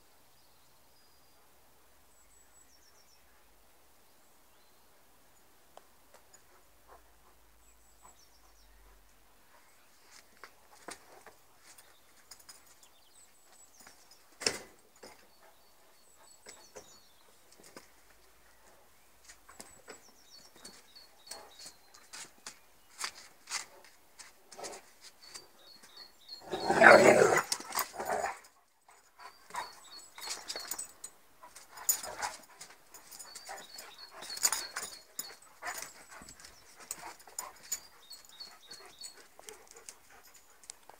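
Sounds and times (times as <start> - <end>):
dogs play-fighting on paving: 6.1 - 40.9
dogs panting and whining: 25.2 - 40.9.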